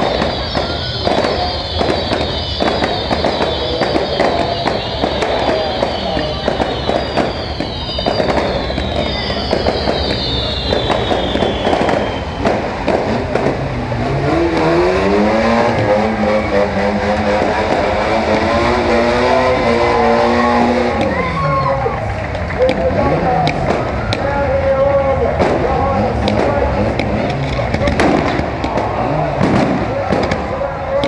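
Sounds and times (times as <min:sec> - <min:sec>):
high falling whistles: 0:00.0 - 0:12.8
car engine revving: 0:00.0 - 0:21.3, 0:22.0 - 0:31.0.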